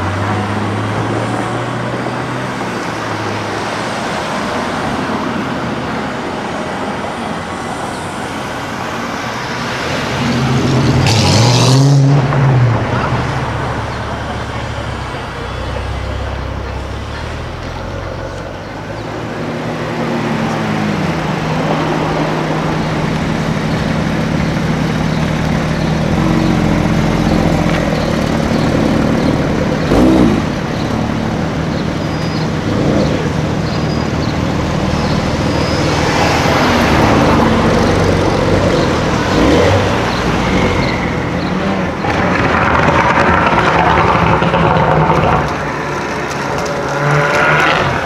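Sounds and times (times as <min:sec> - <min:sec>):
street traffic: 0:00.0 - 0:48.0.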